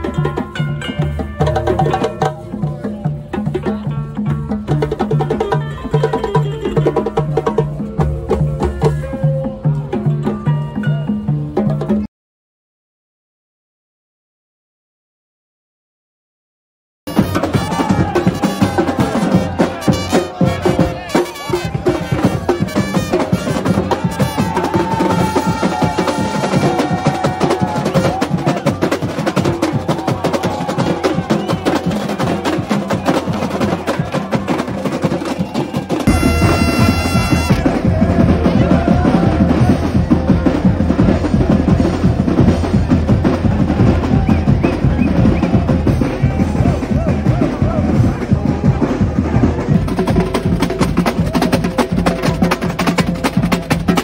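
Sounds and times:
drumline playing fast rhythm: 0.0 - 12.1, 17.1 - 54.0
held pitched note: 36.1 - 37.6.

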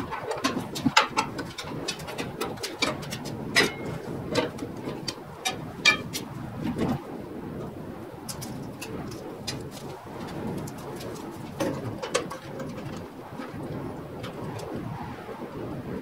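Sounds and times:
hand tools clinking on metal: 0.0 - 6.3, 10.6 - 13.6
metal clanks: 0.0 - 7.0, 8.3 - 14.8.

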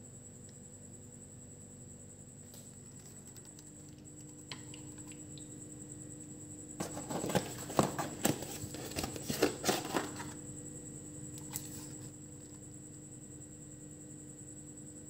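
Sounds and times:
cardboard box crackling: 6.8 - 10.4.

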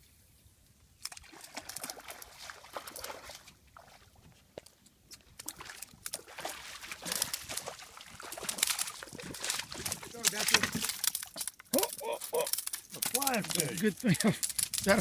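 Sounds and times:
fish splashing in water: 1.1 - 4.2, 5.3 - 13.7.

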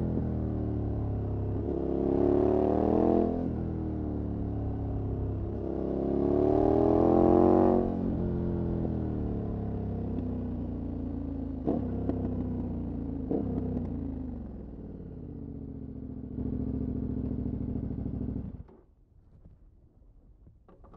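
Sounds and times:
motorcycle engine running: 9.3 - 18.7.

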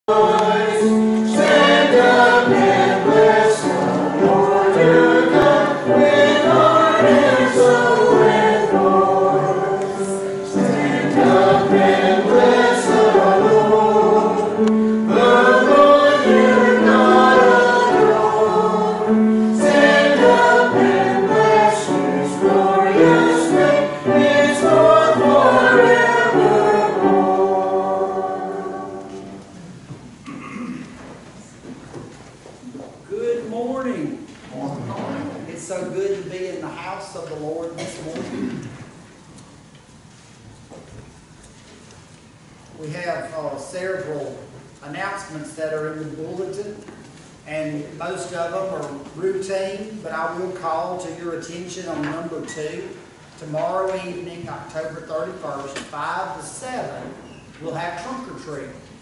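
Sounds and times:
church choir singing: 0.0 - 29.7.

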